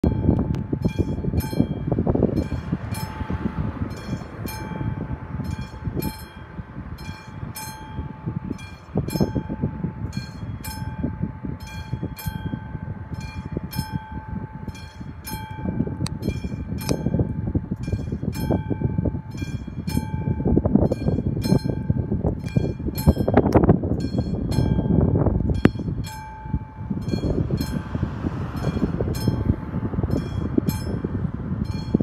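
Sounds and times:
low rumble: 0:00.0 - 0:32.0.

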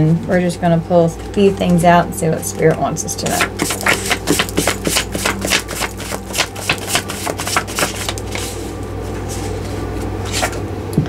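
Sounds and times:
cards being shuffled: 0:03.2 - 0:08.6.

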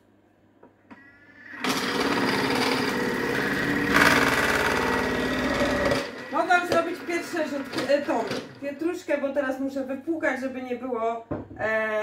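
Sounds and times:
food processor motor whirring: 0:01.0 - 0:08.9.

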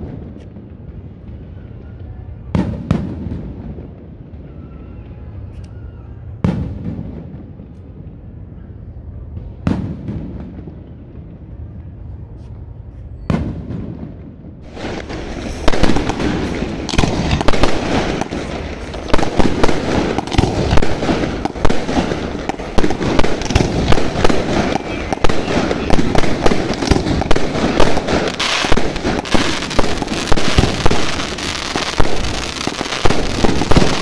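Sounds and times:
rapid firework bangs and crackling: 0:13.3 - 0:34.0.

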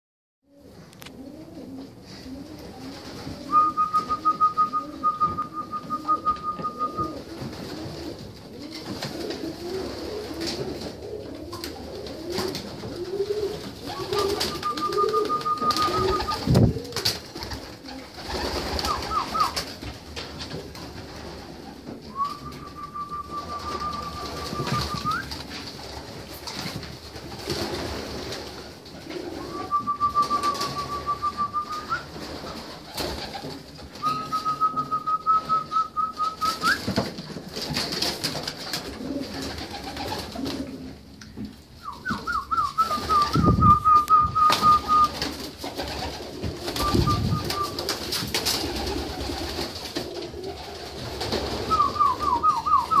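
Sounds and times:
pigeons cooing: 0:00.5 - 0:19.6, 0:21.6 - 0:25.4, 0:29.0 - 0:36.8, 0:38.7 - 0:41.2, 0:41.8 - 0:53.0
high whistled tone: 0:03.5 - 0:07.2, 0:22.1 - 0:25.4, 0:29.4 - 0:32.1, 0:34.0 - 0:36.9, 0:41.8 - 0:45.2, 0:46.8 - 0:47.8, 0:51.6 - 0:53.0.

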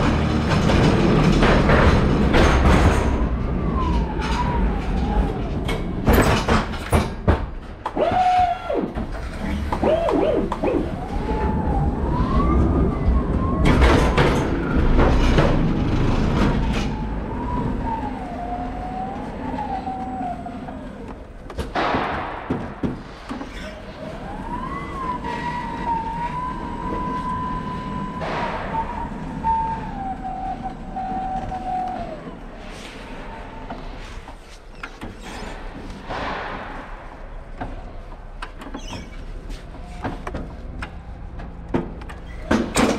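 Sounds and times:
wheels and load rumbling and rattling: 0:00.0 - 0:42.9.

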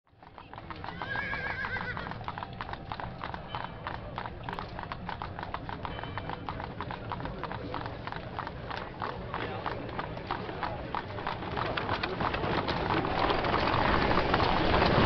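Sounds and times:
horses' hooves clip-clopping: 0:00.1 - 0:15.0
horse whinnying: 0:00.8 - 0:02.3.

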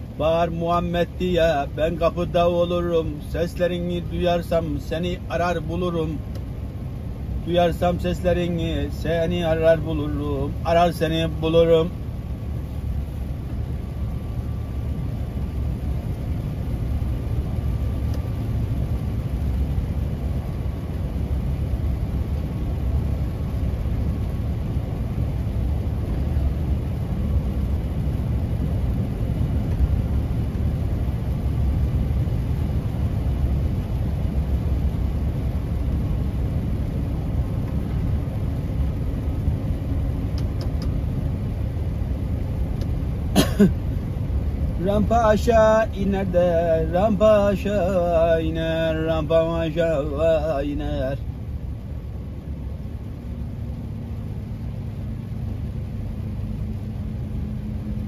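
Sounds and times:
road noise: 0:00.0 - 0:58.0
truck diesel engine rumbling: 0:00.0 - 0:58.0.

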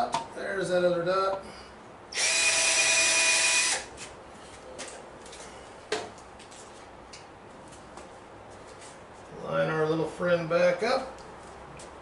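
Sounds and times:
cordless drill boring wood: 0:02.2 - 0:03.9.

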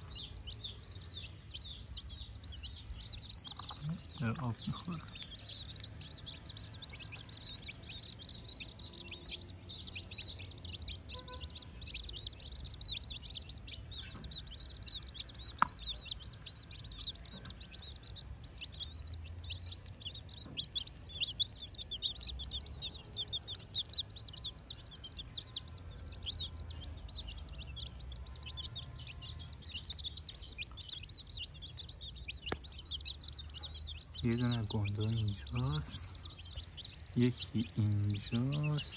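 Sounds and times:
chicks peeping: 0:00.0 - 0:38.9
sharp tap: 0:15.6 - 0:15.8.

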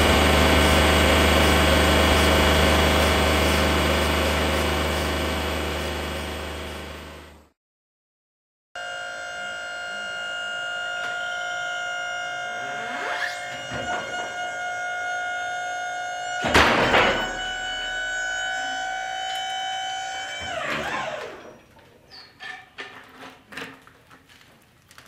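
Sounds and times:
hydraulic pump whining: 0:00.0 - 0:07.4, 0:08.8 - 0:22.9
loud clunk: 0:16.4 - 0:18.4.

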